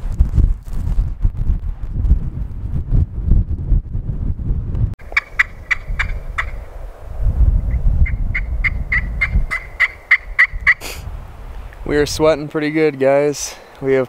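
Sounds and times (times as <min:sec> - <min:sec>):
low rumbling of wind: 0:00.0 - 0:14.0
turkey yelps: 0:05.1 - 0:06.6, 0:08.1 - 0:10.9.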